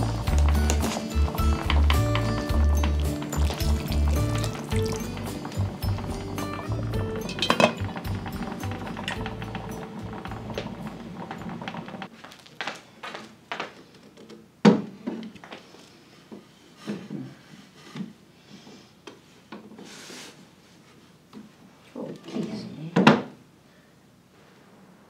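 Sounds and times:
wood knocking: 0.0s - 12.1s.

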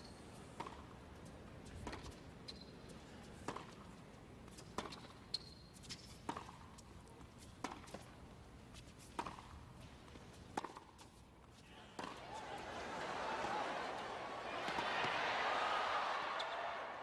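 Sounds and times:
tennis racket striking ball: 6.3s - 6.7s, 9.1s - 9.6s, 10.5s - 11.1s, 12.0s - 12.2s
ball bouncing on court: 12.0s - 12.2s, 14.5s - 15.3s, 16.3s - 16.8s.

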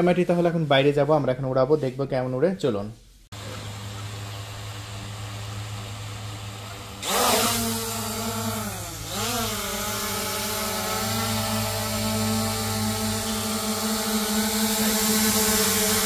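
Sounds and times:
drone propellers humming: 3.4s - 16.0s.

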